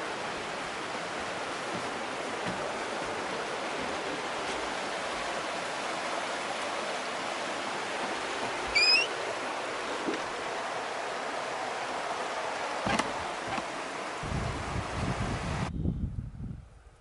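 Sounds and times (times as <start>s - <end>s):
river rushing over rapids: 0.0s - 14.2s
rising bird call: 8.7s - 9.2s.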